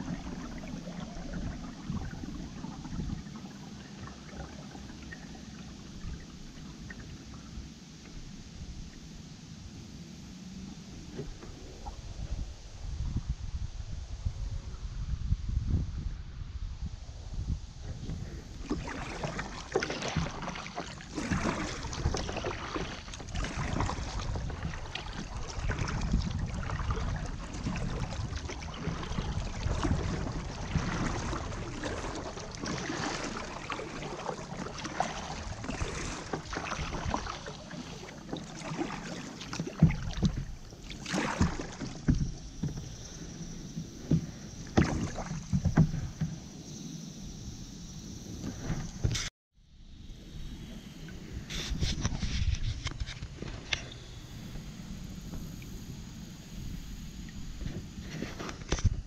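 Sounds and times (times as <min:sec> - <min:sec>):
paddle splashing in water: 0:00.0 - 0:09.0, 0:18.1 - 0:46.9, 0:51.1 - 0:59.0
water washing along hull: 0:00.0 - 0:12.6, 0:18.1 - 0:49.3.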